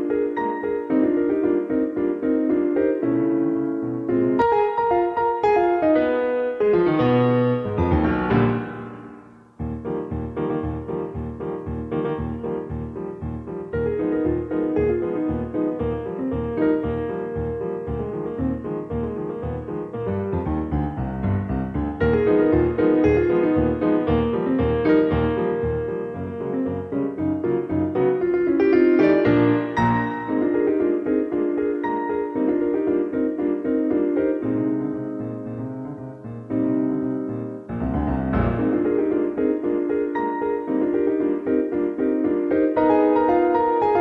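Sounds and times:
piano music: 0.0s - 44.0s.

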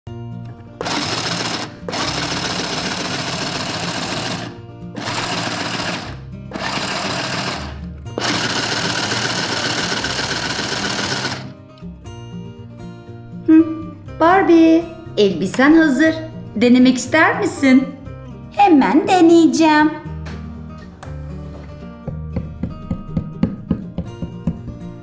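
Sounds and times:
toy sewing machine stitching: 0.8s - 11.5s.

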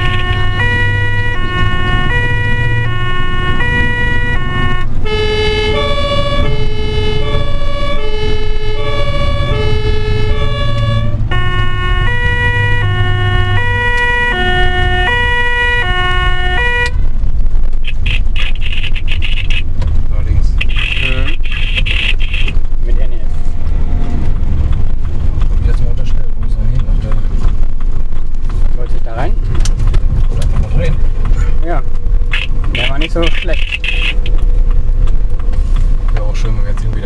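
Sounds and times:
ambulance two-tone siren: 0.0s - 17.1s
engine and road rumble: 0.0s - 37.0s.

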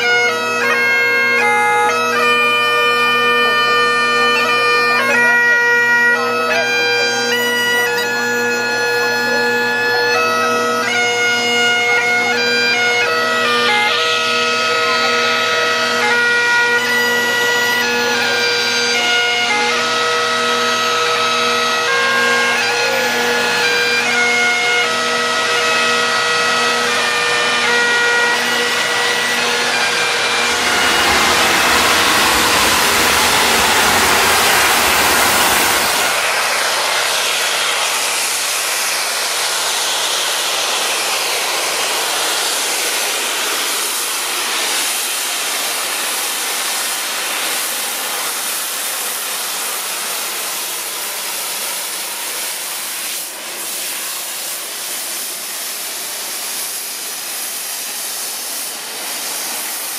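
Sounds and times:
steam locomotive passing at speed: 0.0s - 59.9s.

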